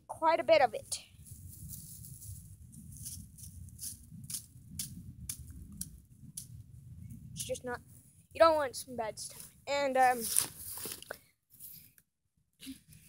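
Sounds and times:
steady low rumble: 0.0s - 10.1s
dry grass rustling and crackling: 0.8s - 8.2s, 9.2s - 11.9s.

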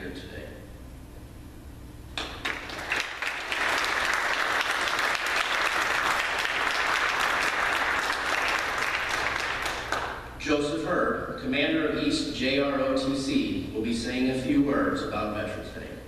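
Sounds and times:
audience applauding: 2.2s - 10.2s.

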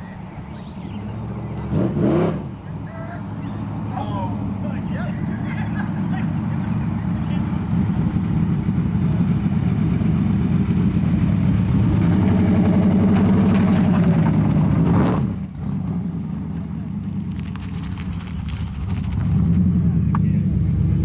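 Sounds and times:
engine rumbling: 0.0s - 21.0s
car engine revving: 1.5s - 2.7s, 6.0s - 21.0s.

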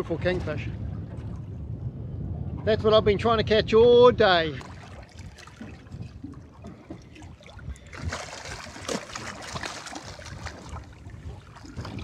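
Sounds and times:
water splashing at boat side: 4.4s - 12.0s.

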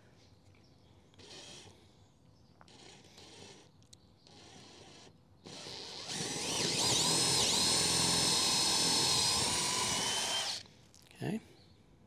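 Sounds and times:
cordless drill boring into wood: 1.2s - 1.8s, 2.6s - 10.6s.

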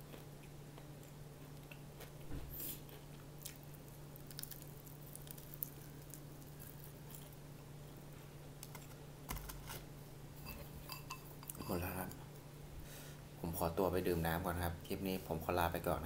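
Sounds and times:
chewing crispy food: 0.0s - 7.6s.

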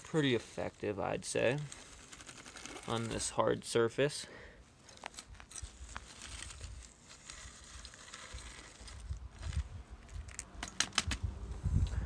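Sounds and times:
toy scraping through snow: 1.3s - 3.3s, 5.2s - 9.7s.

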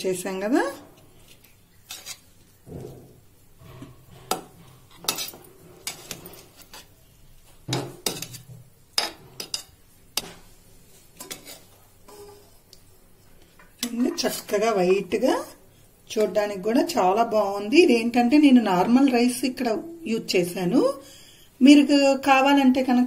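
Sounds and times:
metal spoon scraping metal pot: 1.8s - 2.8s, 3.6s - 7.0s, 11.2s - 12.6s.

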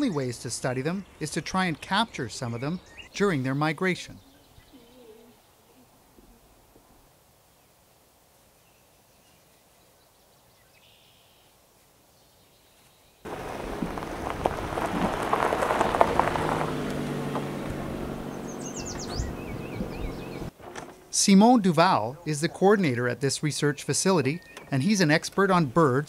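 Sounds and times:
bird calls: 0.0s - 6.4s, 8.6s - 11.5s, 18.2s - 20.5s, 23.5s - 25.8s
tyres crunching on gravel: 13.3s - 20.4s
car engine running low: 13.3s - 20.5s.

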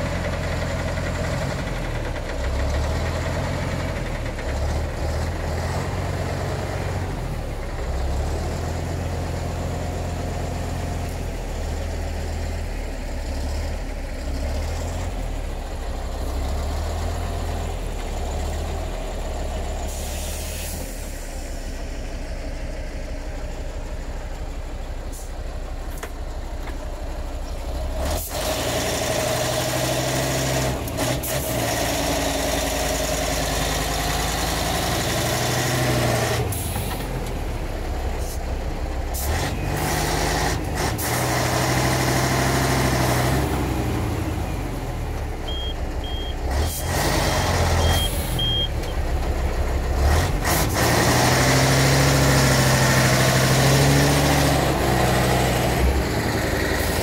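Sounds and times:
heavy diesel engine under load: 0.0s - 57.0s
brief hiss: 19.9s - 21.3s.

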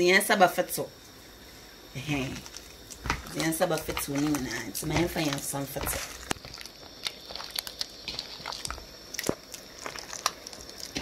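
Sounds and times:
plantain squished by hand: 2.2s - 11.0s.

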